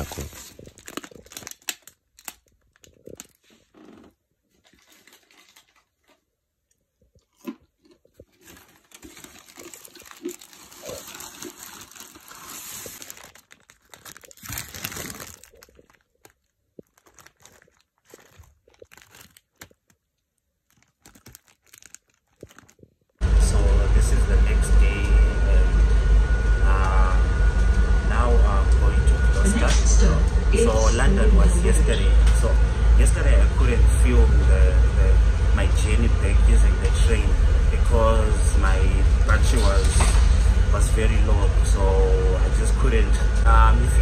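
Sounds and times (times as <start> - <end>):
paper bag crinkling: 0.0 - 6.3, 8.0 - 23.1.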